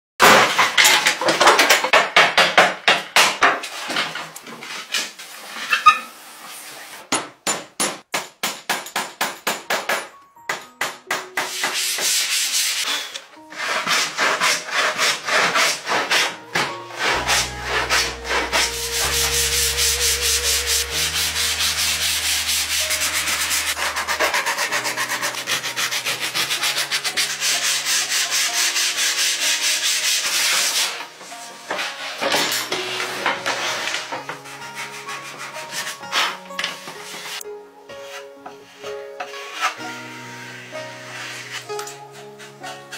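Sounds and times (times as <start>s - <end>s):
sandpaper rubbing on wood: 11.4s - 31.1s, 39.5s - 39.8s.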